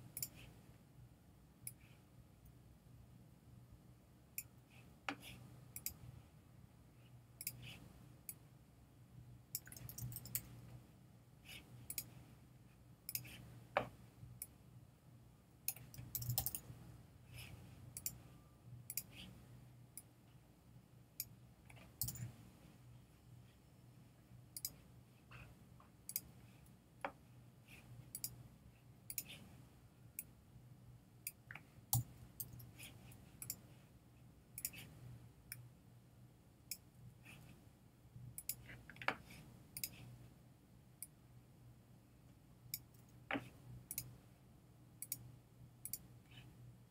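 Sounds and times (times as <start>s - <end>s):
faint low hum: 0.0s - 46.9s
keyboard typing: 9.5s - 10.6s, 15.7s - 16.7s, 21.2s - 22.4s.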